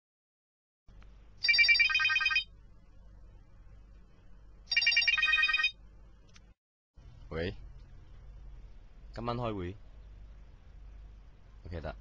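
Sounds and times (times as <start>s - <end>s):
mobile phone ringtone: 1.4s - 2.5s, 4.7s - 5.8s.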